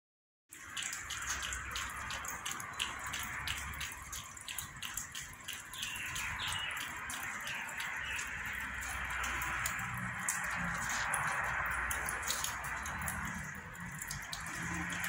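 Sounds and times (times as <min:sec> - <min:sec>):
birds chirping: 0:04.2 - 0:11.2.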